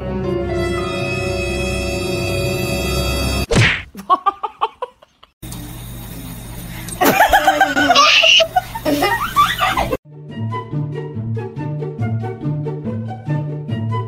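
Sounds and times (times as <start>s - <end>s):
person laughing: 3.9s - 5.3s, 7.0s - 10.0s.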